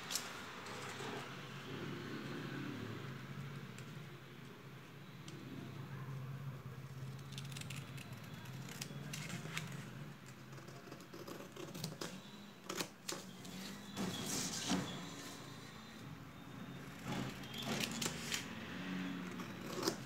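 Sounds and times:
scissors snipping paper: 7.2s - 13.3s.

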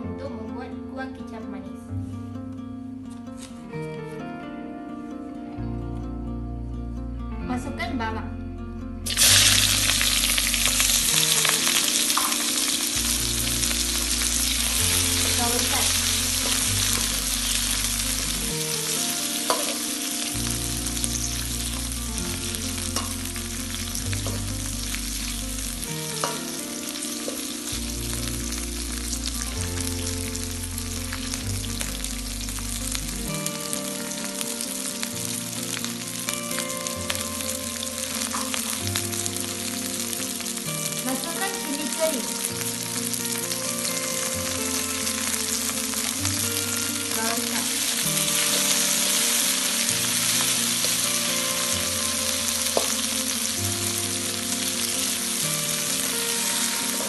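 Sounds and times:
onions sizzling in hot oil: 9.0s - 57.0s.

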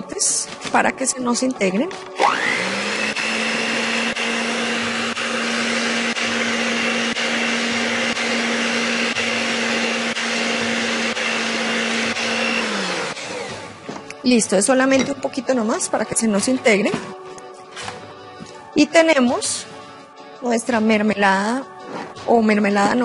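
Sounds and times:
electric stand mixer whine: 2.2s - 13.8s.

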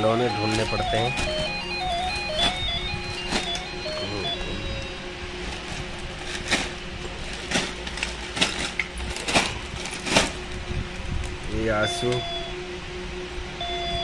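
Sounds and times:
faint steady hum: 0.0s - 14.0s
knocks and crackles of toys: 0.5s - 4.0s, 5.4s - 10.6s.

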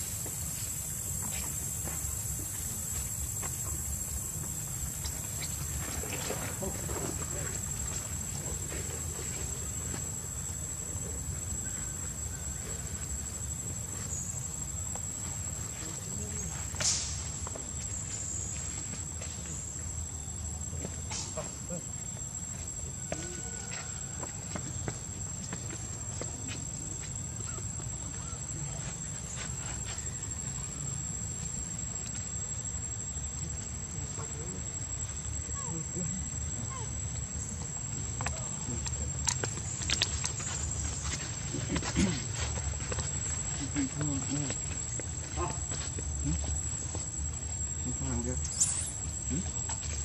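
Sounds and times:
high-pitched insect drone: 26.2s - 50.0s.

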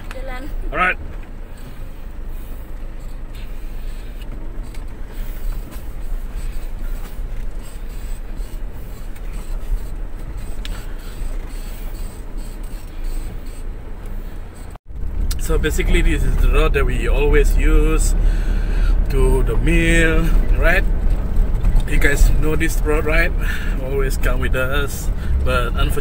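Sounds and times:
vehicle engine and tyres rumbling: 0.0s - 26.0s.

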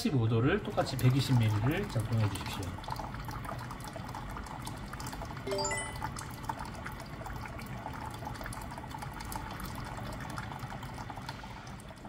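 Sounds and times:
water pouring into plastic jug: 0.4s - 12.0s
rising beeps chime: 5.5s - 6.2s.

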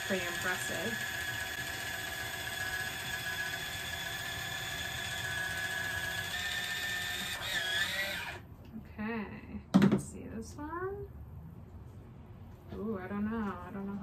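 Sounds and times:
electric can opener whine: 0.0s - 8.4s.

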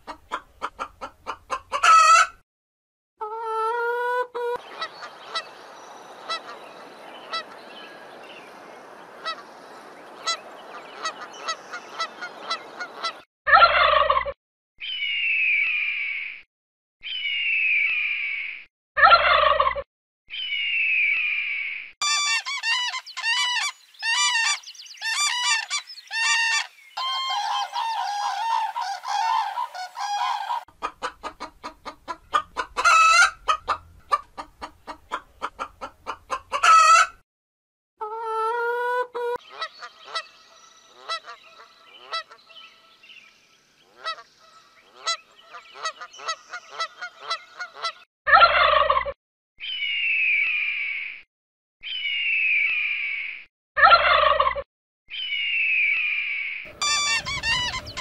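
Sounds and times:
chicken clucking and squawks: 0.0s - 2.4s, 3.2s - 5.6s, 10.2s - 14.4s, 19.0s - 19.8s, 22.0s - 37.2s, 38.0s - 40.2s, 44.9s - 49.2s, 53.8s - 54.6s, 56.7s - 58.0s
goose honks: 56.7s - 58.0s.

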